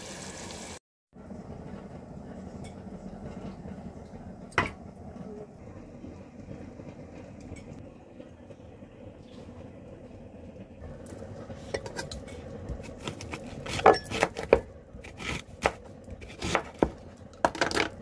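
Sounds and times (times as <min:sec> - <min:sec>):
low background hum: 0:01.2 - 0:18.0
cookware handling: 0:17.4 - 0:18.0.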